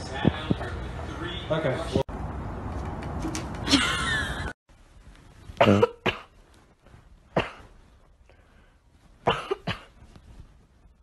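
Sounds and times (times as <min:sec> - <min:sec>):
short coughs: 0:07.3 - 0:07.7, 0:09.2 - 0:10.0.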